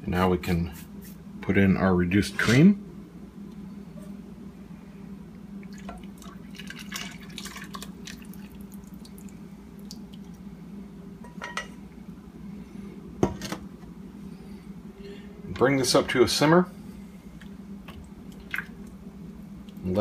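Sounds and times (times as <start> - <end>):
steady low hum: 0.0 - 20.0
cream pouring into soup: 5.7 - 10.0.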